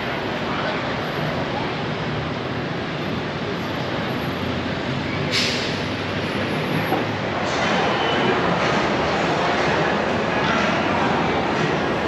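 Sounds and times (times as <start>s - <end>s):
busy street traffic: 0.0s - 12.0s
short sharp hiss: 5.3s - 5.8s.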